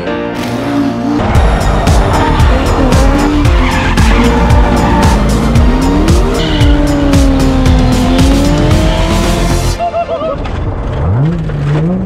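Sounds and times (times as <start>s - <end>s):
car engines revving: 0.4s - 9.8s, 10.4s - 12.0s
music with fast steady beat: 1.4s - 9.8s
tyres squealing: 1.9s - 8.0s.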